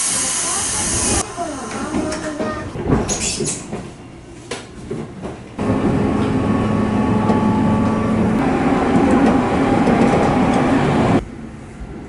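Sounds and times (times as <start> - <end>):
train motor whining tones: 5.6 - 11.2
electric train running noise: 5.6 - 11.5.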